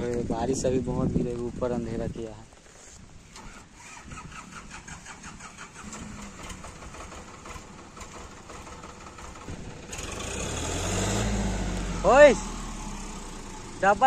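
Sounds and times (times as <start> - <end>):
tractor starter motor cranking: 3.2 - 11.0
tractor engine running: 3.2 - 14.0.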